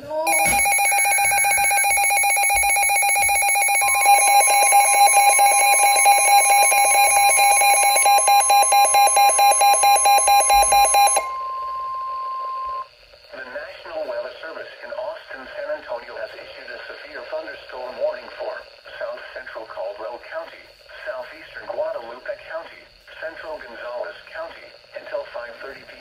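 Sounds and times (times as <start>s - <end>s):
rapidly pulsing alarm beeps: 0.2s - 12.9s
steady warning alarm tone: 0.2s - 12.9s.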